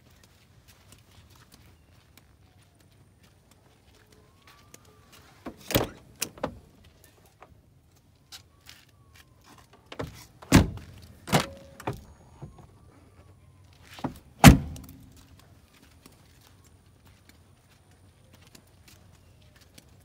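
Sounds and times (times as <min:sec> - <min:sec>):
car door latch clicks and knocks: 0:14.4 - 0:15.0.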